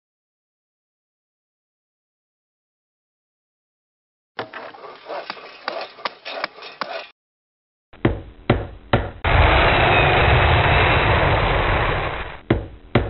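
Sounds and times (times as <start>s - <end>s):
loud machine noise with low rumble: 9.2s - 12.4s.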